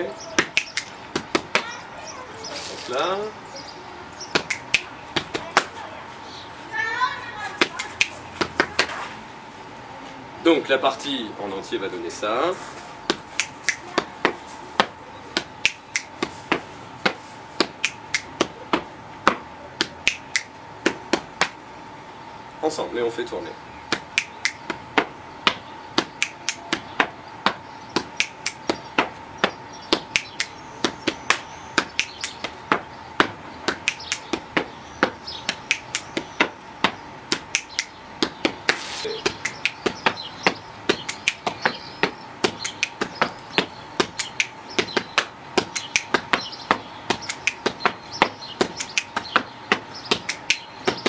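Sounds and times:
finger snaps: 0.4 - 1.0, 4.4 - 5.4, 7.8 - 8.9, 13.1 - 14.1, 14.8 - 16.3, 17.6 - 18.6, 19.8 - 20.5, 23.9 - 24.8, 25.5 - 26.8, 28.0 - 28.8, 29.4 - 32.6, 33.7 - 34.4, 35.5 - 36.5, 37.3 - 40.2, 40.9 - 46.5, 47.1 - 49.4, 50.1 - 51.0
hand slaps on body: 0.4 - 1.7, 4.4 - 5.7, 13.1 - 21.6, 28.0 - 51.0.

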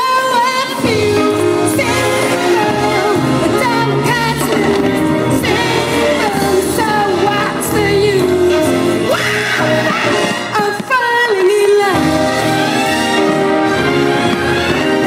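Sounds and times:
music with singing: 0.0 - 15.0.

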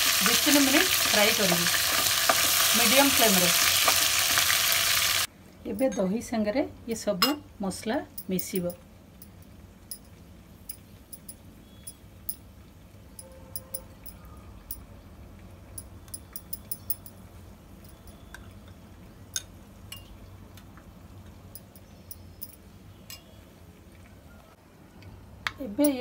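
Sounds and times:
spoon clinking against bowl: 8.2 - 12.4, 13.2 - 14.9, 15.8 - 17.2, 17.8 - 18.8, 19.4 - 20.1, 21.6 - 23.4.

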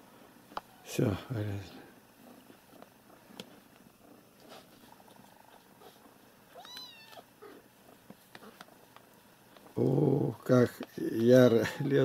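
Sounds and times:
faint clicks and rustles: 1.8 - 11.5
kitten mewing: 6.5 - 7.6.

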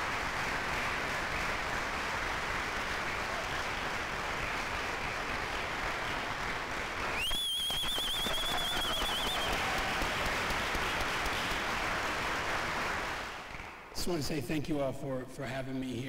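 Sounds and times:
audience applauding: 0.0 - 13.9
high wavering whistle: 7.2 - 9.6.

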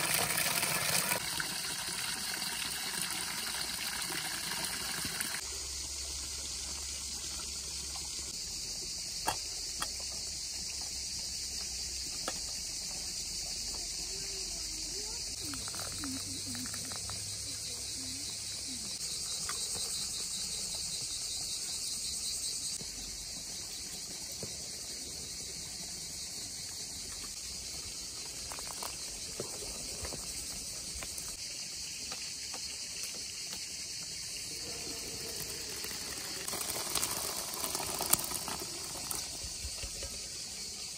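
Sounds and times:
insects chirring: 0.0 - 40.9.

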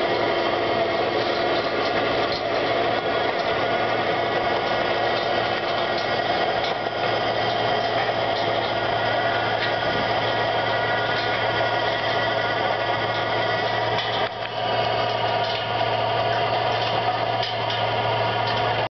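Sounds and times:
tractor engine running under load: 0.0 - 18.9.

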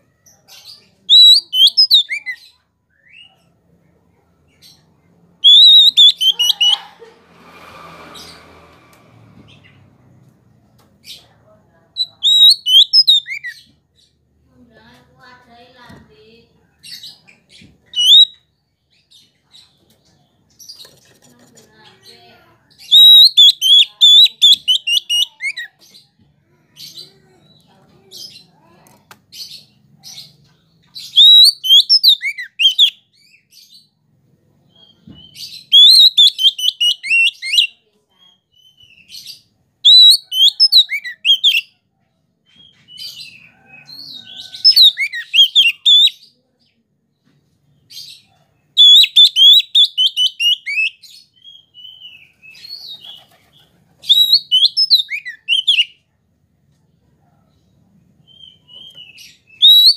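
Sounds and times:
bird singing whistled notes: 1.1 - 2.4, 5.4 - 6.8, 12.0 - 13.6, 18.0 - 18.4, 22.8 - 25.3, 31.1 - 33.0, 35.2 - 37.7, 39.8 - 41.6, 44.6 - 46.2, 48.8 - 53.0, 54.0 - 56.0, 58.2 - 59.9
soft bird chirps: 4.5 - 6.8, 11.0 - 14.2, 42.5 - 56.0.

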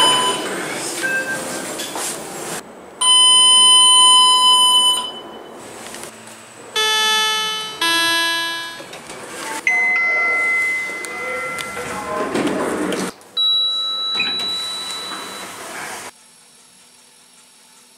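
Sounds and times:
electronic chime tone: 3.0 - 5.5, 6.8 - 8.9
high electronic beep: 3.0 - 5.5, 6.8 - 8.9, 13.4 - 15.5
two-note ding-dong chime: 6.8 - 8.9, 9.7 - 11.8.

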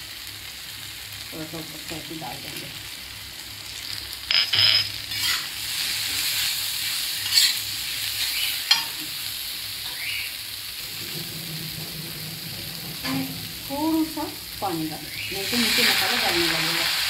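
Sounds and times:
spices sizzling on a griddle: 0.0 - 17.0.

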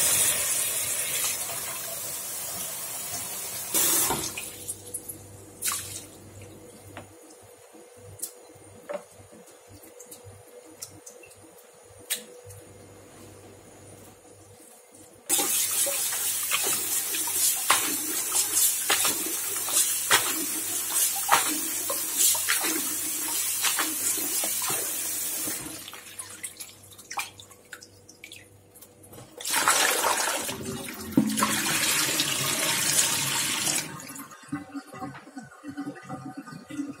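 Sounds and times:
water dripping: 4.3 - 12.6, 15.7 - 29.2.

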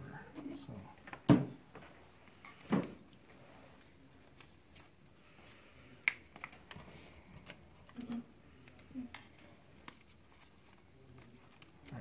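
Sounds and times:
plastic sheet and paper clicking: 6.0 - 12.0.

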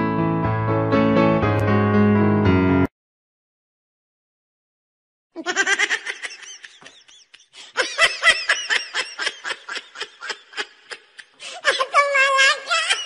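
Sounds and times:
person laughing hard: 5.4 - 12.0.

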